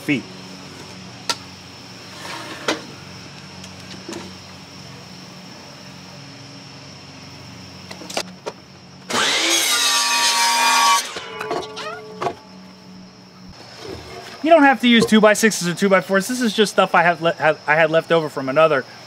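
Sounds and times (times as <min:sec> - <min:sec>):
miter saw cutting wood: 0:09.1 - 0:12.3.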